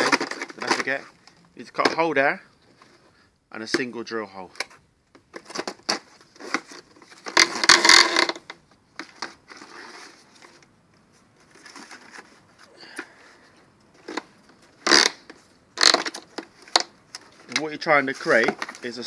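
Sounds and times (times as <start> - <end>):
plastic hose scraping in bucket: 5.7 - 8.5.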